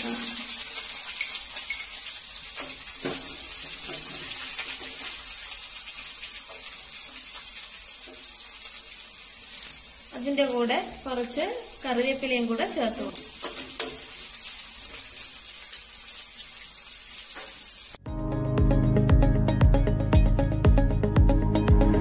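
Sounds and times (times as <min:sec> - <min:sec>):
hot oil sizzling in a pan: 0:00.0 - 0:18.0.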